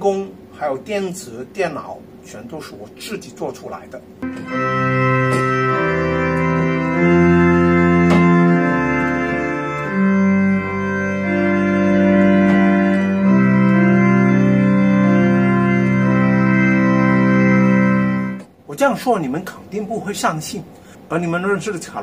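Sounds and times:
deep pedal bass notes: 4.2s - 18.4s
pipe organ chords: 4.2s - 18.6s.

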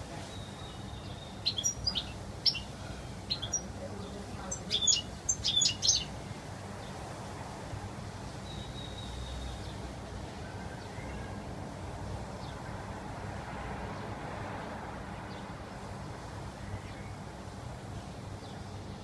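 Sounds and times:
bird chirping: 0.3s - 6.2s, 8.4s - 9.8s.

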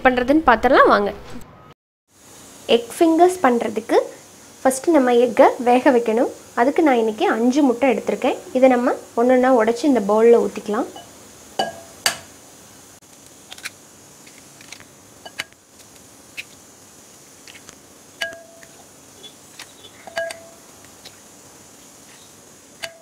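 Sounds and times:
glass ringing: 11.0s - 12.3s, 18.2s - 18.8s, 19.8s - 20.6s.

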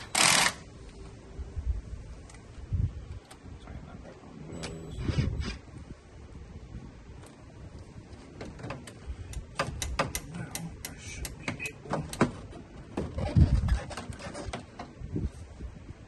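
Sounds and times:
tools and plastic parts clicking: 8.6s - 12.4s.

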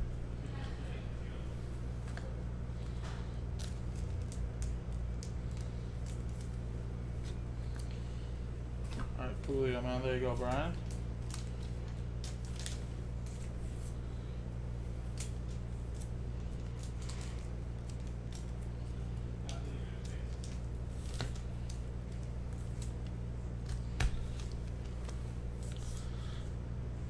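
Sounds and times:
steady low hum: 0.0s - 27.0s
foil packs crinkling: 9.2s - 14.0s, 15.0s - 26.4s.

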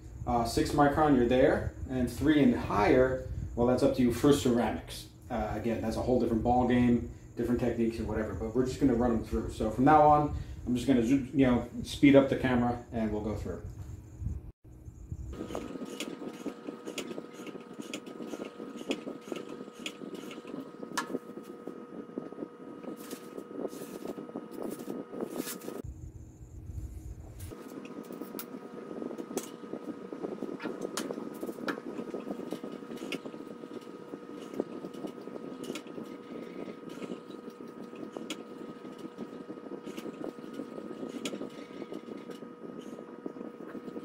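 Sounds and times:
steady hum: 0.0s - 44.0s.

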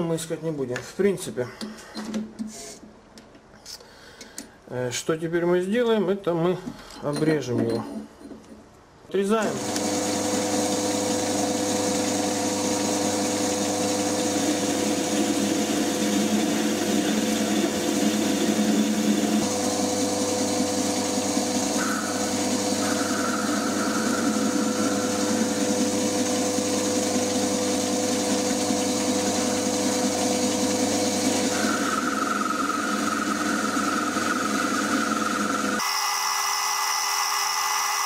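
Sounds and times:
cutter cutting metal: 9.4s - 38.0s
lathe motor and gear hum: 9.4s - 38.0s
high steady whine: 10.8s - 38.0s.

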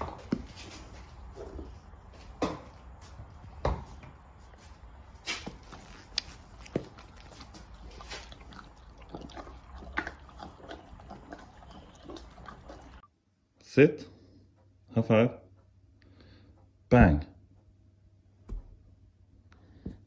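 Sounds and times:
horse crunching and chewing: 0.0s - 3.5s, 5.2s - 13.0s.

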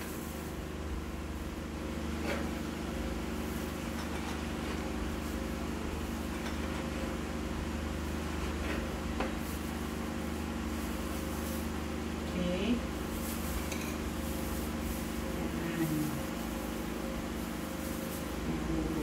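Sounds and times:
steady mechanical hum: 0.0s - 19.0s.

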